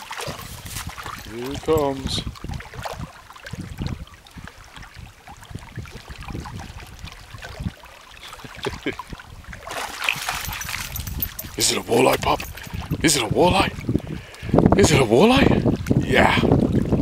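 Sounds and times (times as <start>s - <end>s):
fish thrashing at the surface: 0.0s - 3.8s, 9.5s - 13.0s
shallow water sloshing and splashing: 0.0s - 13.0s.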